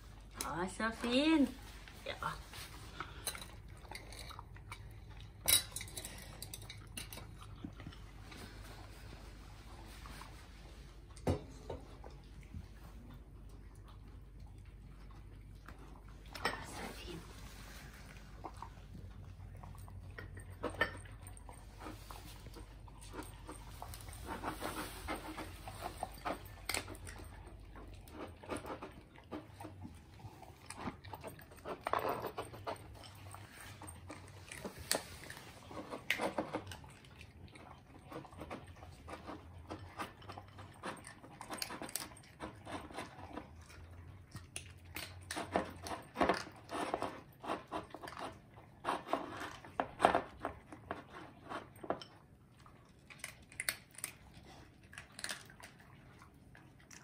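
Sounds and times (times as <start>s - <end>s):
dogs crunching kibble: 0.0s - 57.0s.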